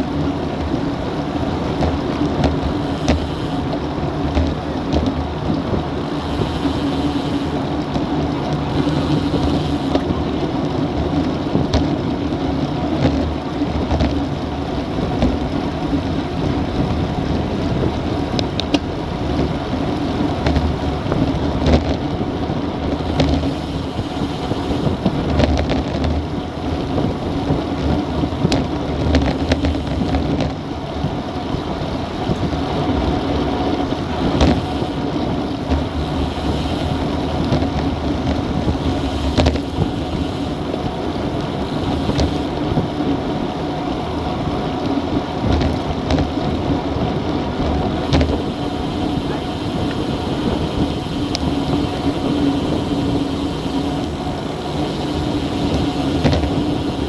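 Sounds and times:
road noise: 0:00.0 - 0:57.0
wind rush: 0:00.0 - 0:57.0.

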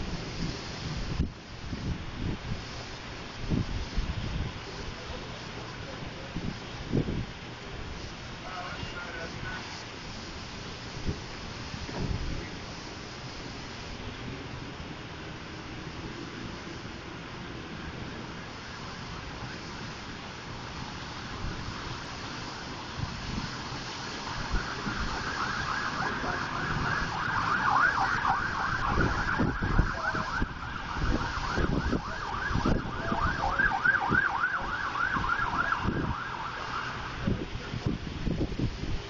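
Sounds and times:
emergency siren yelping: 0:17.7 - 0:37.5.

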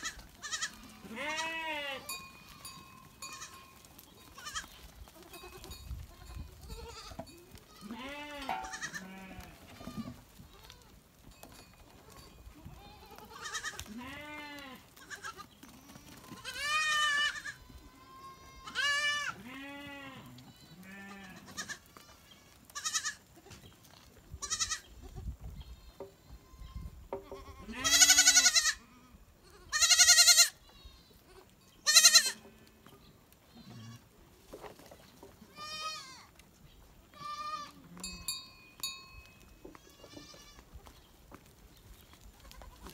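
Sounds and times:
goats and sheep bleating: 0:00.0 - 0:34.6, 0:35.2 - 0:42.9.

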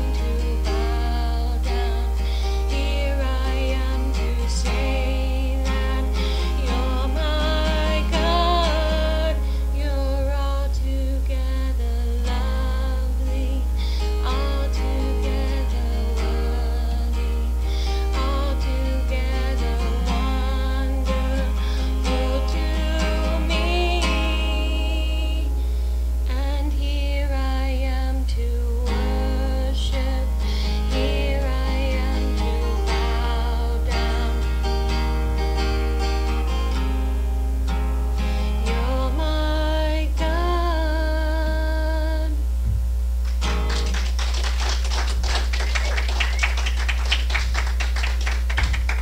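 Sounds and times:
woman singing: 0:00.0 - 0:25.6, 0:26.3 - 0:35.0, 0:38.6 - 0:42.4
acoustic guitar: 0:00.0 - 0:49.0
steady low hum: 0:00.0 - 0:49.0
low hum: 0:37.0 - 0:44.2
scattered hand clapping: 0:43.2 - 0:49.0.

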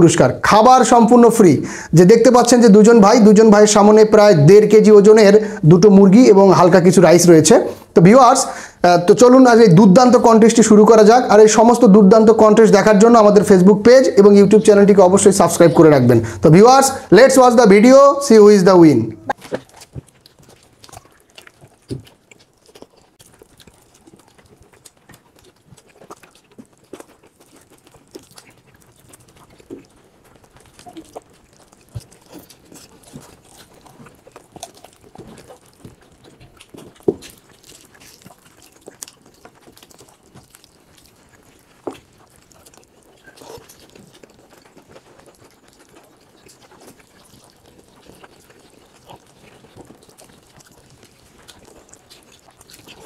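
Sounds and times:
wet chewing and lip-smacking: 0:00.2 - 0:53.0
cooked chicken pulled apart: 0:19.3 - 0:53.0.

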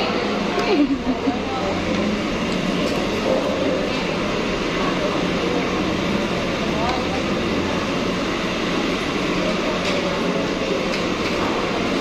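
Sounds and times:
many diners talking: 0:00.0 - 0:12.0
ventilation noise: 0:00.0 - 0:12.0.

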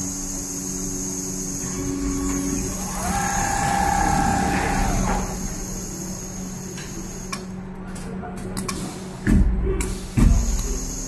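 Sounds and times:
sewing machine mechanical hum: 0:00.0 - 0:07.4
high motor whine: 0:01.7 - 0:06.0.

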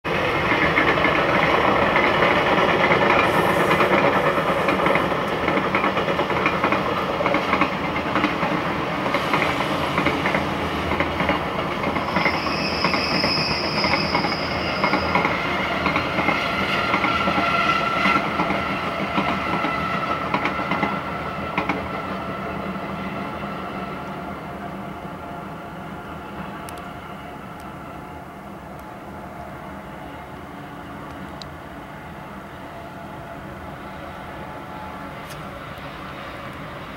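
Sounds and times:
train brakes squealing: 0:00.1 - 0:05.9, 0:08.2 - 0:28.3.

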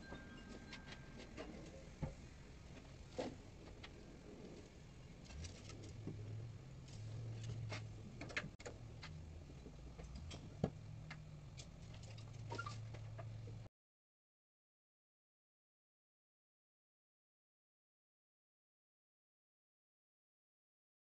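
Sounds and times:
low hum: 0:00.0 - 0:13.7
clicks and knocks of handling objects: 0:04.6 - 0:13.6.

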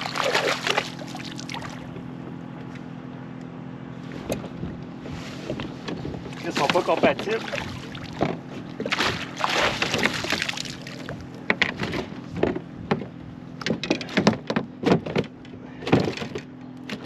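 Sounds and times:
water splashing: 0:00.0 - 0:01.9, 0:06.5 - 0:08.2, 0:08.8 - 0:11.2
knocks and clatter on kayak: 0:05.4 - 0:17.0.

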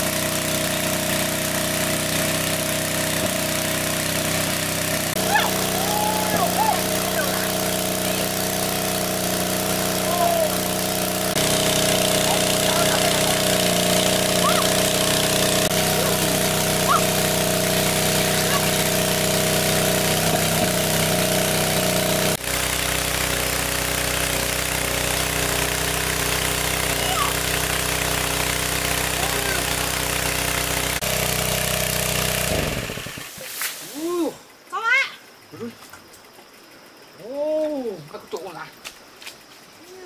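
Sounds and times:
water pump engine running: 0:00.0 - 0:33.4
water jet: 0:00.0 - 0:34.3.

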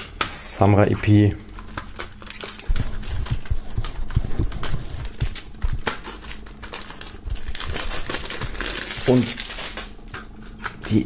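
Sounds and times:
plastic film crinkling: 0:01.4 - 0:11.0.

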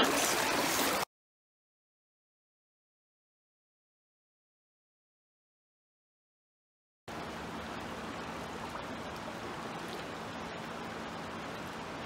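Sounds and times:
faint low hum: 0:07.1 - 0:12.0.

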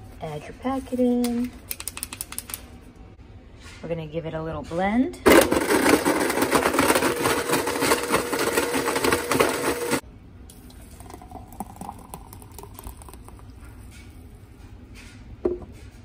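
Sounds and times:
blender motor whirring with ice: 0:05.3 - 0:10.0.

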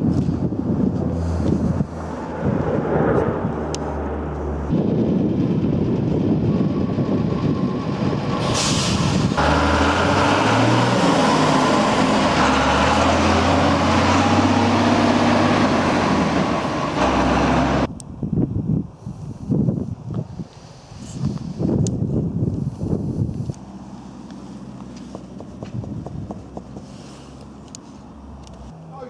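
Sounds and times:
truck diesel engine: 0:00.0 - 0:18.0, 0:22.6 - 0:28.7
gusty wind on microphone: 0:00.0 - 0:23.8, 0:25.5 - 0:26.6
air hiss: 0:08.5 - 0:09.2.

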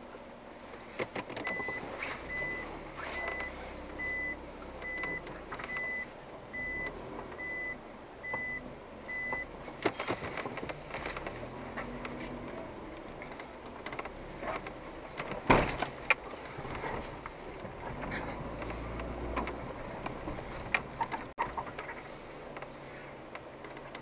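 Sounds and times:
car engine idling: 0:00.0 - 0:24.0
short high warning beeps: 0:01.5 - 0:09.5.

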